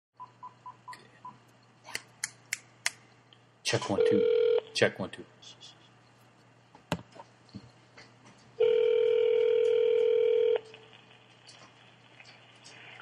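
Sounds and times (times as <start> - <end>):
telephone ringback tone: 4.0 - 4.6, 8.6 - 10.6.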